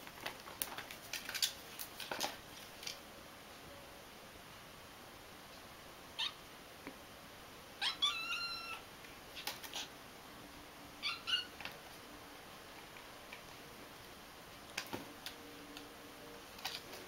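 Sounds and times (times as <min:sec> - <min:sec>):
kitten crying: 0:06.2 - 0:06.4, 0:07.8 - 0:09.9, 0:11.0 - 0:11.6.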